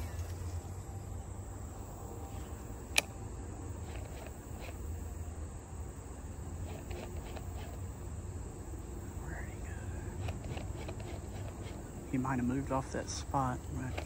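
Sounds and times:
high-pitched insect buzz: 0:00.0 - 0:14.0
sharp click: 0:02.9 - 0:03.2.

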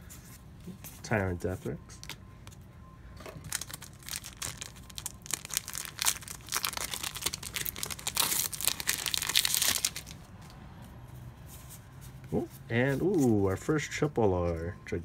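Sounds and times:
wrapper tearing and crinkling: 0:03.4 - 0:10.2.

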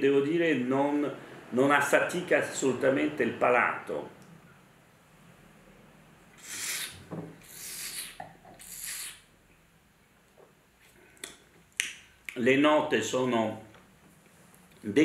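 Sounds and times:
hissing wine slurps: 0:06.4 - 0:09.2.

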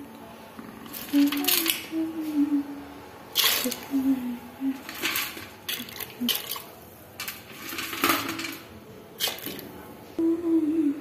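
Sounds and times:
small splashes: 0:05.1 - 0:06.8.

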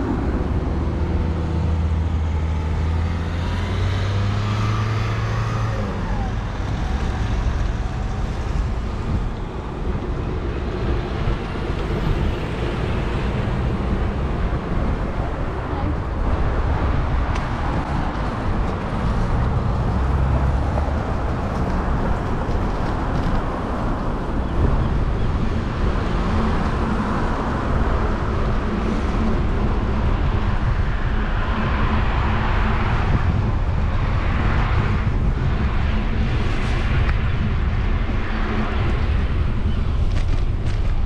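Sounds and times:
vehicle passing by: 0:00.0 - 0:09.3
road traffic noise: 0:00.0 - 0:41.0
wind rumbling on microphone: 0:00.0 - 0:41.0.

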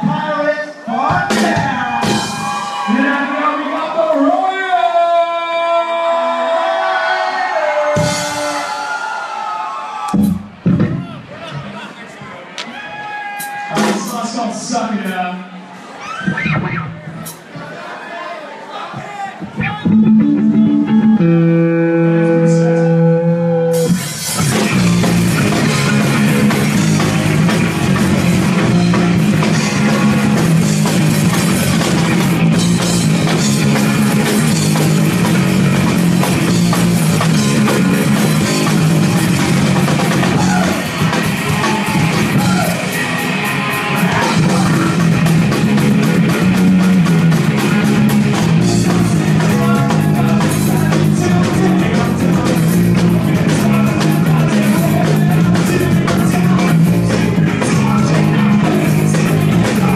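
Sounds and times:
live rock band playing: 0:01.2 - 0:03.2, 0:07.9 - 0:09.0, 0:10.1 - 0:11.0, 0:19.5 - 0:59.9.

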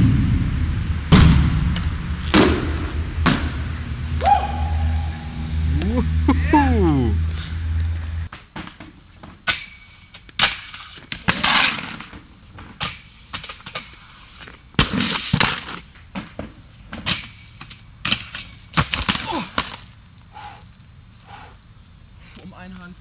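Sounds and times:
inline skates clacking and scraping: 0:07.3 - 0:20.8.

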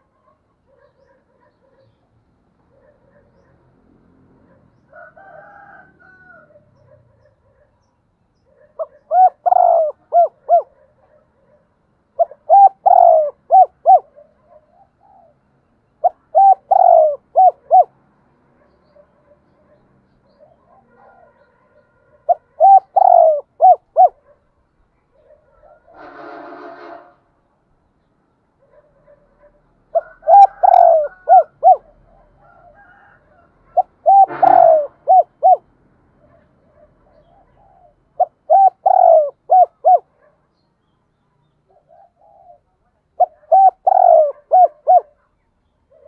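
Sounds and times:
dove cooing: 0:08.5 - 0:15.4, 0:16.0 - 0:18.0, 0:19.2 - 0:24.4, 0:25.1 - 0:26.1, 0:28.7 - 0:40.3, 0:41.7 - 0:45.2.

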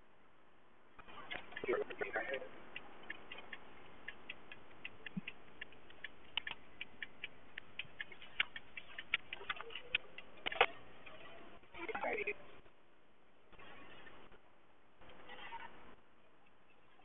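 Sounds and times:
quiet hum of moving car: 0:00.0 - 0:17.0
turn signal ticking: 0:00.9 - 0:12.8.

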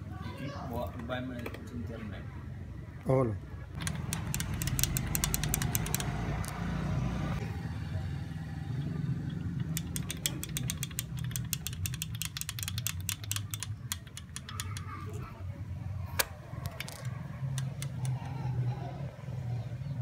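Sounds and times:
ratchet wrench clicking: 0:03.8 - 0:06.5, 0:09.3 - 0:14.9, 0:16.2 - 0:18.2.

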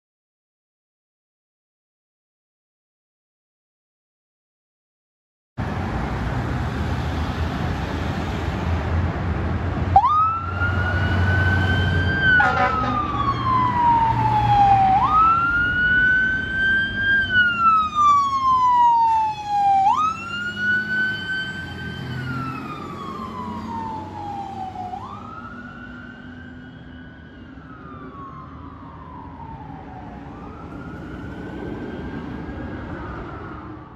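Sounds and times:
fire engine siren wailing: 0:09.9 - 0:33.9.

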